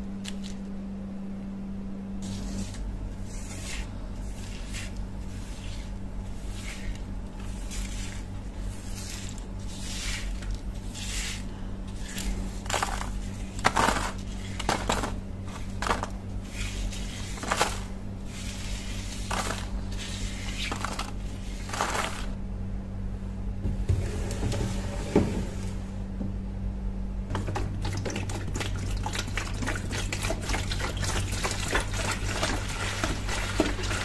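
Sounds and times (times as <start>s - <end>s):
steady low hum: 0.0s - 34.0s
paintbrush sweeping rust flakes: 2.2s - 22.4s.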